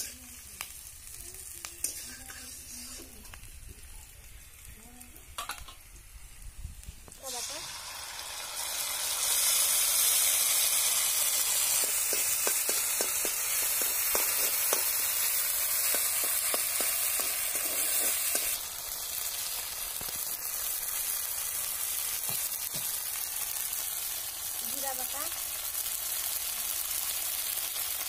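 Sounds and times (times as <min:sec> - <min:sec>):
spatula scraping metal pan: 0:00.0 - 0:00.2, 0:01.8 - 0:03.3
paste sizzling in hot oil: 0:00.0 - 0:28.0.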